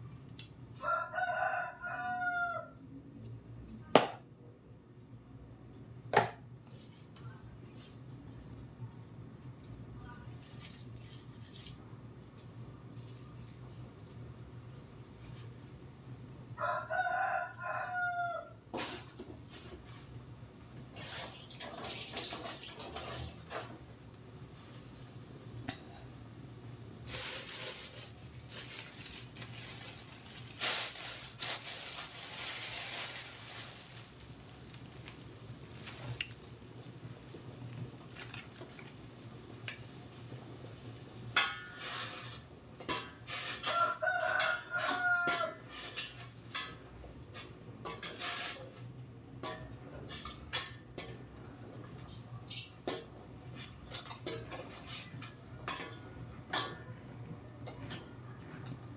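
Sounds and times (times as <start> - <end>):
rooster crowing: 0.8 - 2.8, 16.6 - 18.6, 43.7 - 45.7.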